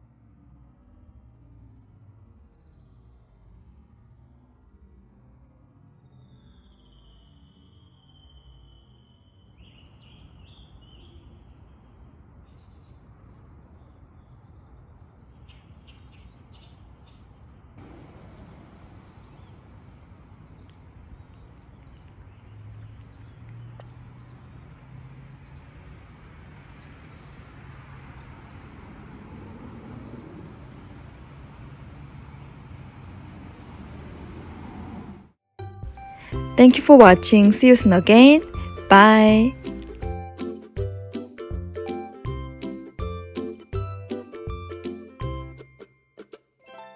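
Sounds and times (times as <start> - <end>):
small birds chirping: 6.7 - 34.5.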